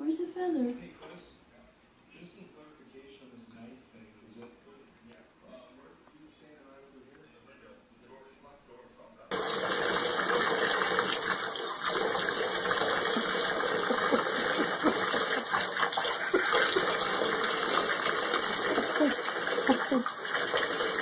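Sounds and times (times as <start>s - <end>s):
water running from bathtub tap: 9.3s - 21.0s.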